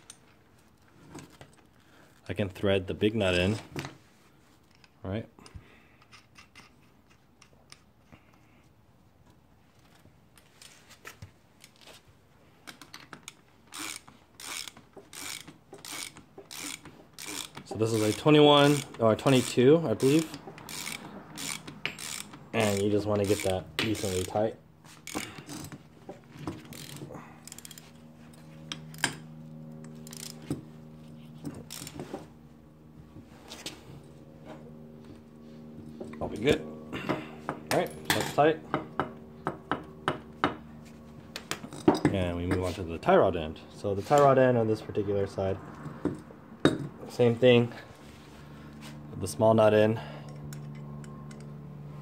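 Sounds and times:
steady low hum: 0.0 - 52.0
hand ratchet ratcheting: 12.7 - 25.8, 26.4 - 27.9, 29.8 - 30.6, 31.5 - 32.1.

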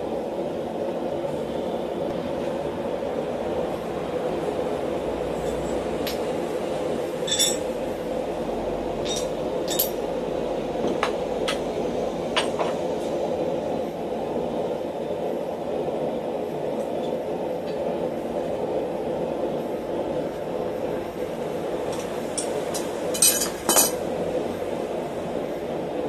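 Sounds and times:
steel tools clinking: 7.2 - 7.7, 9.0 - 10.0, 21.9 - 24.0.

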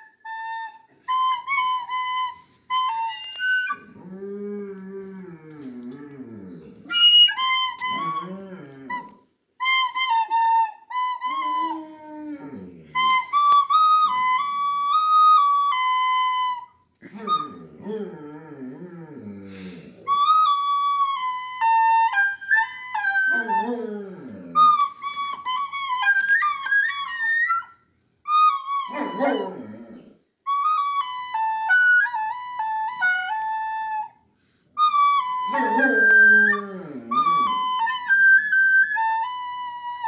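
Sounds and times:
high flute-like tune: 0.0 - 40.0
dog howling: 2.9 - 9.2, 11.3 - 13.2, 17.0 - 20.8, 21.6 - 24.9, 28.8 - 30.2, 35.2 - 38.1.

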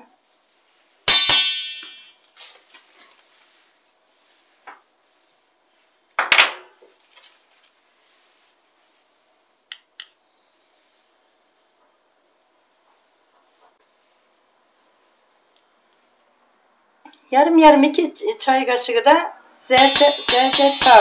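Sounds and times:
teaspoon clinking against bowl: 19.7 - 21.0.

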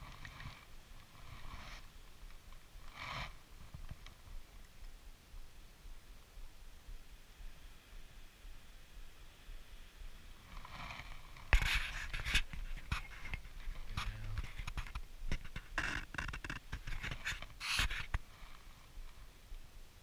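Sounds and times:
hand knocking and rubbing camera: 11.5 - 18.2.

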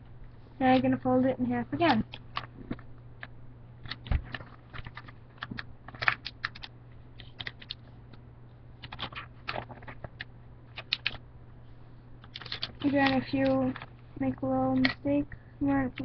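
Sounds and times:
steady low hum: 0.0 - 16.0
paper crinkling: 1.8 - 7.9, 8.8 - 11.2, 12.2 - 14.0.

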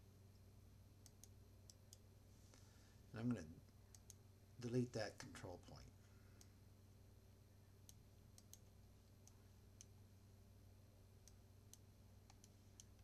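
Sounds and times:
low steady hum: 0.0 - 13.0
computer mouse clicks: 1.0 - 2.0, 3.9 - 4.2, 7.8 - 9.9, 11.2 - 13.0.

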